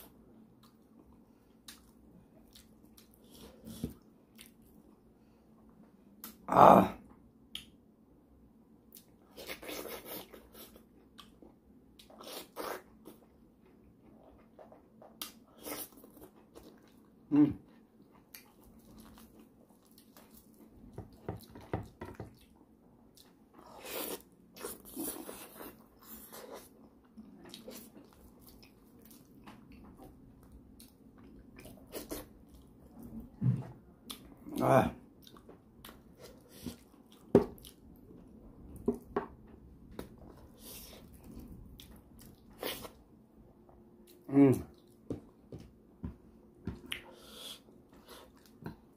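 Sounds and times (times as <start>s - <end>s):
person chewing: 0.0s - 4.8s, 14.0s - 21.6s, 22.2s - 33.2s, 34.0s - 38.2s, 40.0s - 43.0s, 46.7s - 48.9s.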